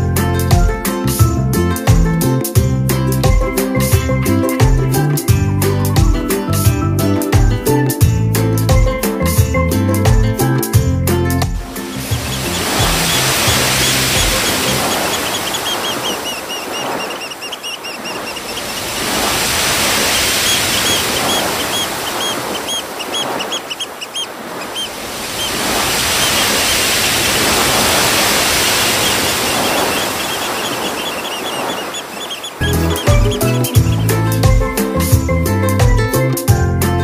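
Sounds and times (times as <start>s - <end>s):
ocean surf breaking on rocks: 11.4s - 35.2s
bird chirping: 11.8s - 35.0s.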